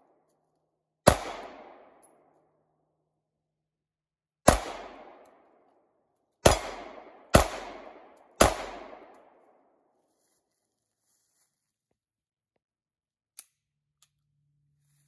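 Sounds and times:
pistol shots with echo: 1.0 - 2.2, 4.4 - 5.6, 6.4 - 9.7.

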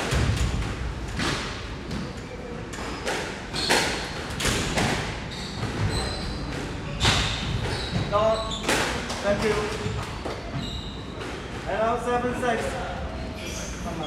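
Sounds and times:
shoes squeaking on wooden floor: 5.3 - 11.5.

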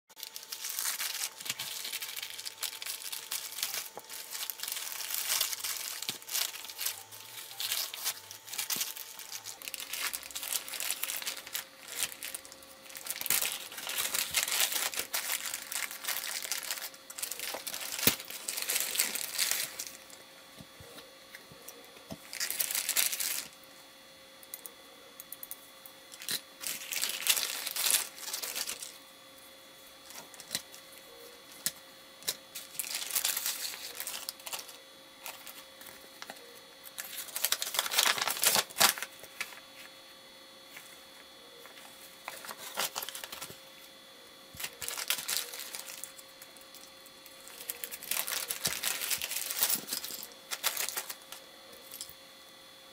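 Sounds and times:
plastic bags crinkling: 0.1 - 20.2, 22.2 - 23.6, 26.2 - 29.0, 32.3 - 39.7, 42.2 - 43.6, 44.6 - 52.1
paper sheet rustling: 0.2 - 20.0, 32.6 - 35.6, 37.0 - 39.9.

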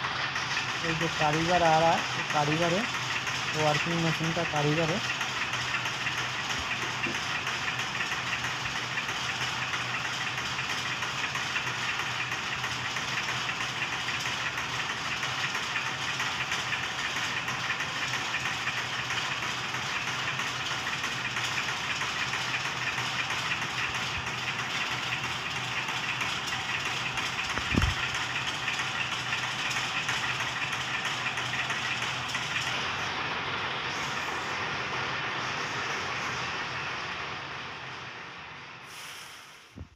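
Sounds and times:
machine clattering over hum: 0.0 - 37.9.

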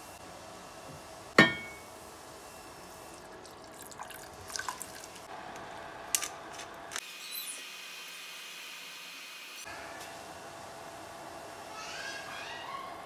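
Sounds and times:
kitchenware clinking: 1.4 - 1.9
water pouring into saucepan: 3.2 - 5.3.

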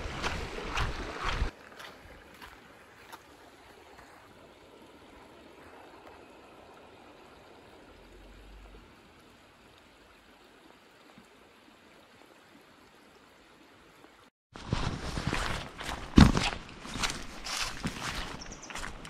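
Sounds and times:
footsteps on stony path: 0.0 - 3.4, 14.6 - 19.0
stream running over stones: 0.0 - 19.0.

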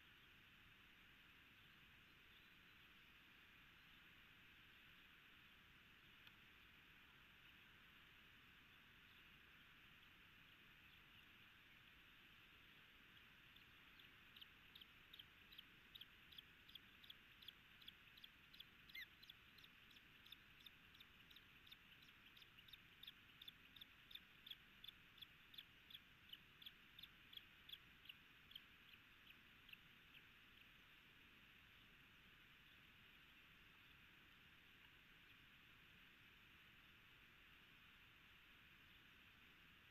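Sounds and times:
osprey chirping: 12.7 - 31.0.

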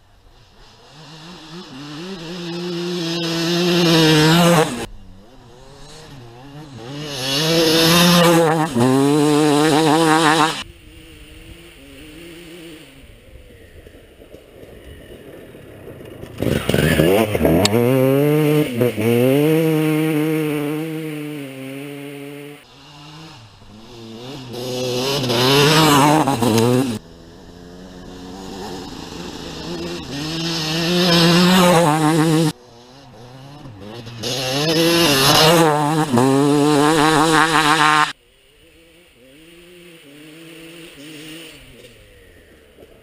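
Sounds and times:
dirt bike engine revving: 0.3 - 15.0, 16.0 - 43.0.

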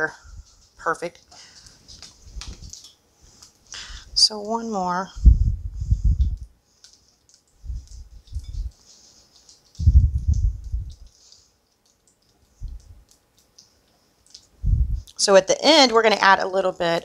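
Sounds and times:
light clicks and ticks: 6.2 - 14.6
low dull thuds: 9.8 - 11.1, 14.6 - 15.1.

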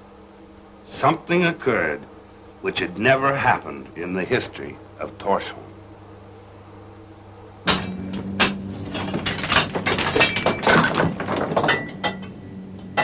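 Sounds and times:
faint hum: 0.0 - 13.0
pickaxes striking rock: 7.7 - 12.2.

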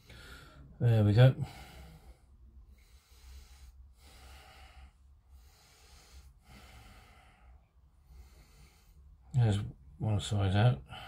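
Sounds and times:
faint breathing: 0.0 - 9.3, 10.8 - 11.0
low steady hum: 0.0 - 11.0.

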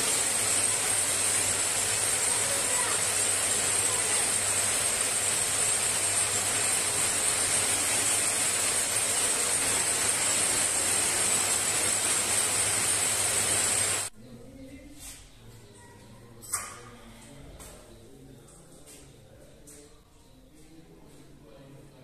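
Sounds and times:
winding machine whirring with whine: 0.0 - 14.1.

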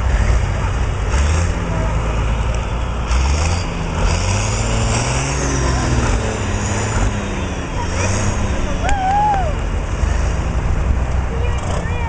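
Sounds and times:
tractor engine under load: 0.0 - 8.9.

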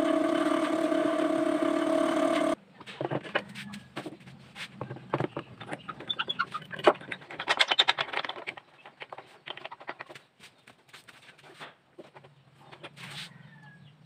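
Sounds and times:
light wooden knocks and clicks: 4.8 - 13.0.

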